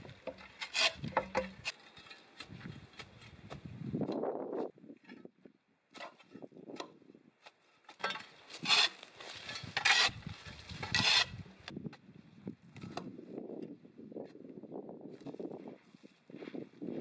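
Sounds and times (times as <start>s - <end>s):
hoe scraping through dry weeds: 0.0s - 5.3s, 7.4s - 11.7s
dry brush rustling: 7.4s - 11.7s.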